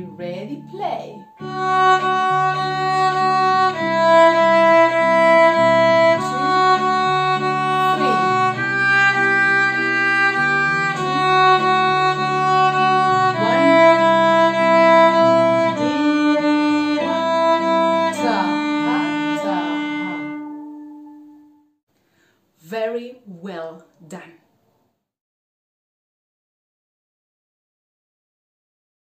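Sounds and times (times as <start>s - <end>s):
backing track: 0.0s - 21.6s
violin playing simple tune: 0.0s - 21.8s.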